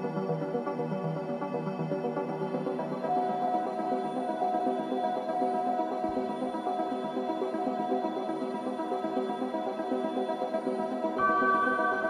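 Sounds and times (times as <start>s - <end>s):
music of layered held tones: 0.0s - 12.0s.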